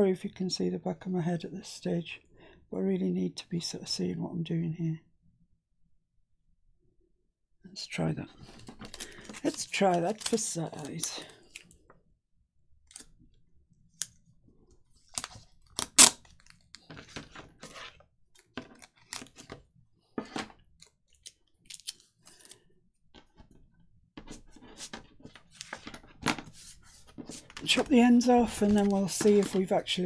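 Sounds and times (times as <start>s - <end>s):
paper rustling and clicking: 8.4s - 11.7s, 24.2s - 30.0s.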